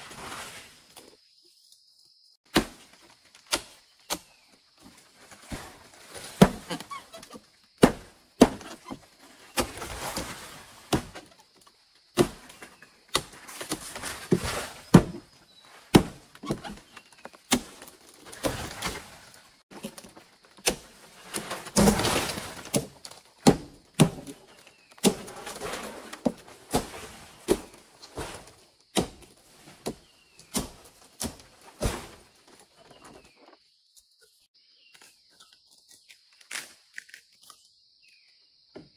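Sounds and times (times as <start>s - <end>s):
sharp knocks and thuds: 2.5s - 11.4s, 12.1s - 19.1s, 19.7s - 33.4s
scraping and rustling: 24.4s - 28.8s.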